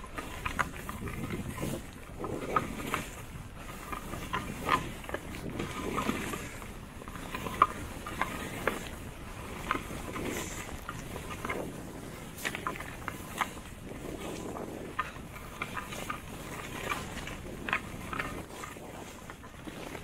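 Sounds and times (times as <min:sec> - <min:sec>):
wind rushing over microphone: 0:00.0 - 0:20.0
skis hissing through snow: 0:03.9 - 0:14.9, 0:15.6 - 0:20.0.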